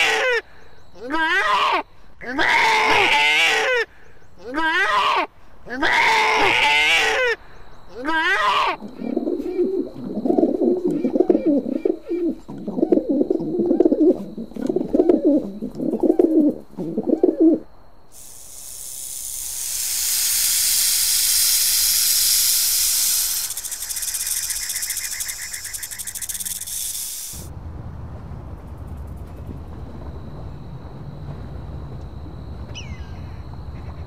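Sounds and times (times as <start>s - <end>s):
snake hissing: 18.1s - 27.5s.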